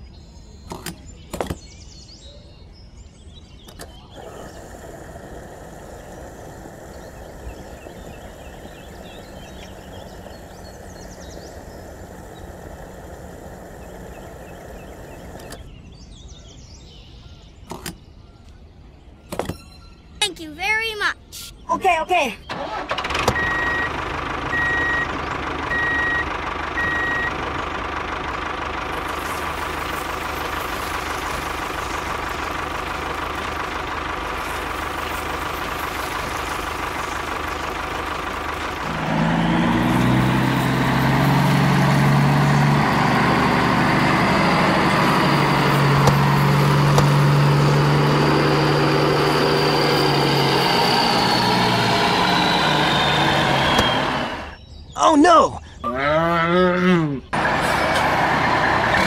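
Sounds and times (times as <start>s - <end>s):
tractor engine running: 3.6s - 15.8s, 22.4s - 54.6s, 57.4s - 59.0s.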